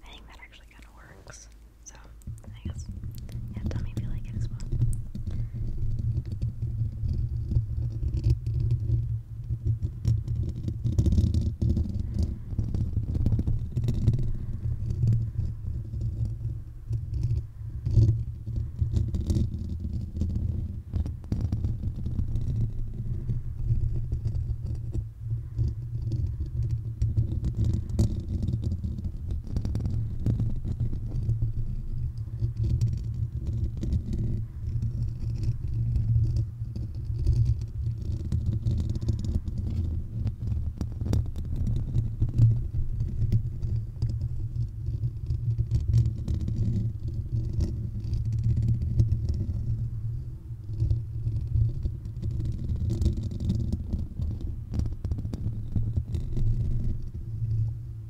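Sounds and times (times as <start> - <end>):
heavy low rumble: 0.0 - 8.5.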